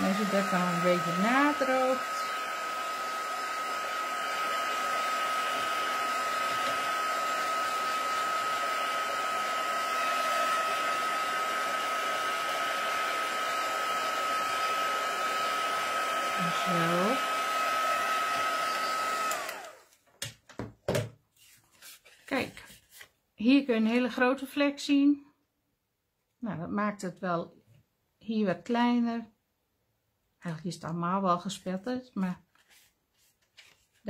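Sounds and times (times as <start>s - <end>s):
heat tool blowing with whine: 0.0s - 19.9s.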